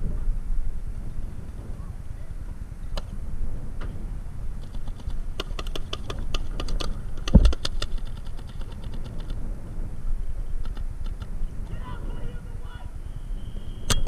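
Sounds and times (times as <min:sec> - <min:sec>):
wind rumbling on microphone: 0:00.0 - 0:14.0
paintball marker shots: 0:04.6 - 0:09.4.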